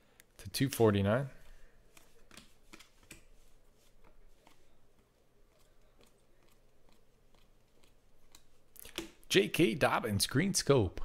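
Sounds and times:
trading cards being dealt: 1.9s - 9.2s.

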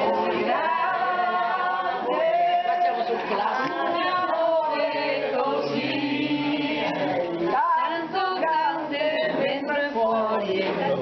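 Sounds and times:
group singing unaccompanied: 0.0s - 11.0s.

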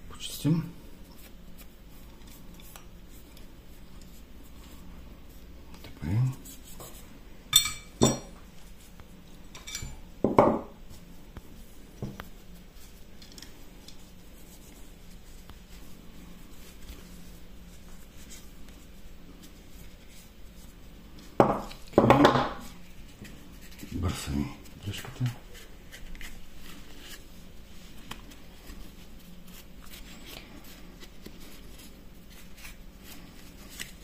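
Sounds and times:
cloth rubbing: 10.8s - 21.2s.

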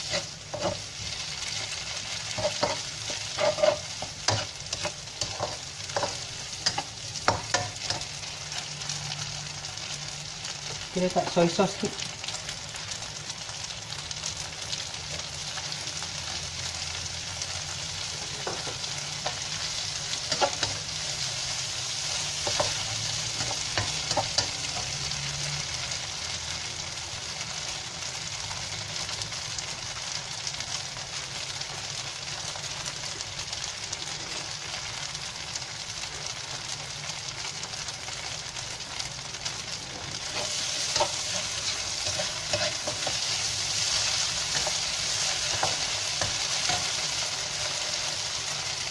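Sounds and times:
spatula scraping and tapping pan: 0.0s - 0.9s, 2.3s - 8.1s, 18.2s - 19.7s, 20.3s - 20.9s, 22.4s - 25.0s, 40.3s - 47.0s
noodles sizzling in a wok: 0.0s - 48.9s.

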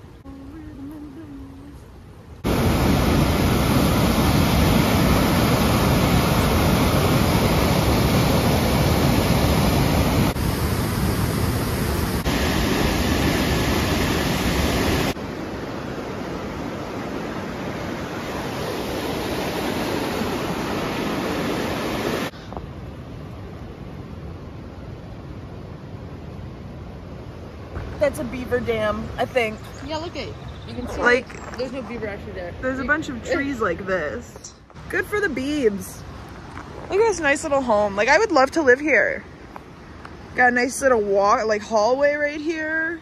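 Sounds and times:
rush of falling water: 2.4s - 22.9s.

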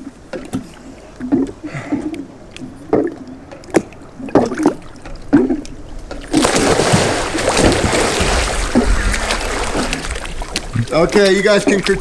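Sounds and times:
water splashing and churning: 0.0s - 12.0s.

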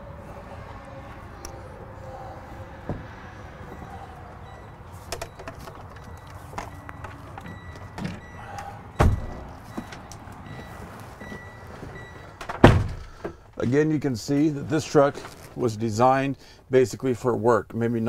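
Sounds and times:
knocks thumps and shuffling: 4.9s - 15.7s.

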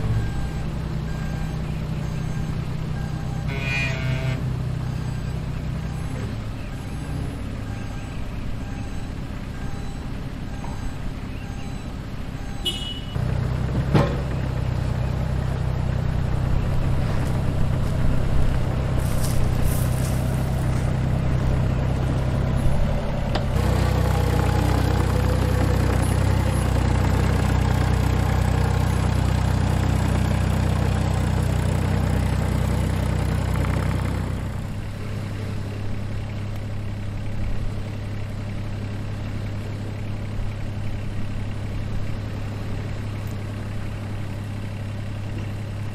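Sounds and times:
engine idling: 0.0s - 45.9s
heavy vehicle engine revving: 0.0s - 45.9s.

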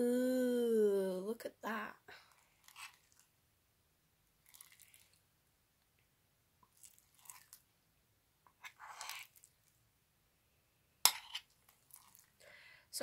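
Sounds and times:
spoon stirring squelching slime: 2.2s - 3.4s, 4.4s - 5.3s, 6.6s - 7.7s, 8.4s - 9.8s, 11.0s - 12.4s.

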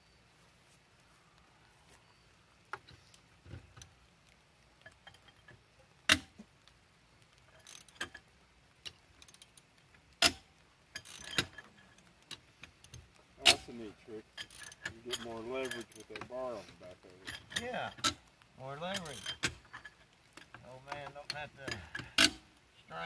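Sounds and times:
lug wrench clanking on lug nuts: 20.4s - 22.4s.

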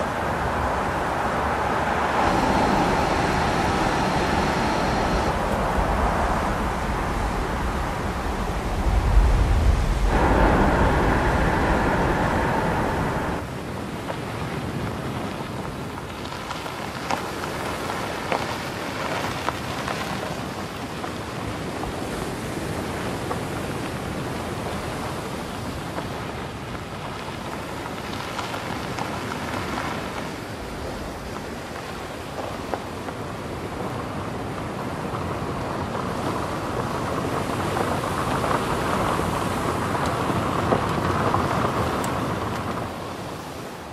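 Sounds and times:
crackling hiss: 0.0s - 43.9s
car driving by: 0.3s - 13.5s.

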